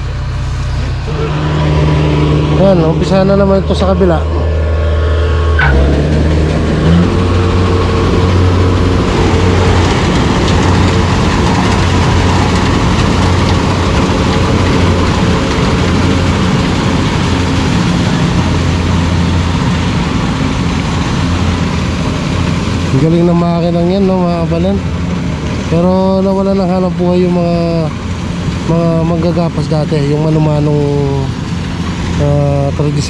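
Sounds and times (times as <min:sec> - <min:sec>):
combine harvester engine running: 0:00.0 - 0:33.0.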